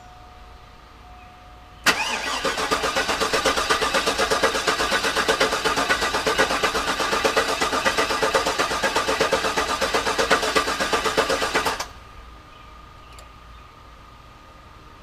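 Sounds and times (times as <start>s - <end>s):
engine cranking chugging: 1.9s - 11.9s.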